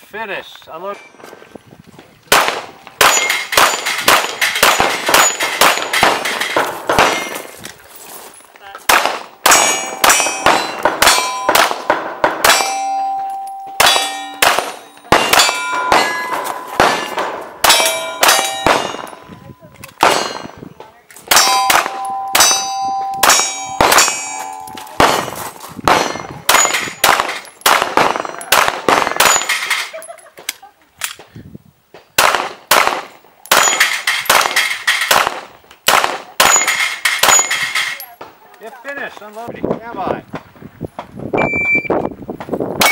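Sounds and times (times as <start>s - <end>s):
pistol shots: 2.3s - 7.5s, 8.9s - 19.3s, 20.0s - 20.6s, 21.3s - 29.8s, 32.2s - 38.0s
steel targets ringing: 3.0s - 6.6s, 9.4s - 20.6s, 21.3s - 25.3s, 36.4s - 38.0s.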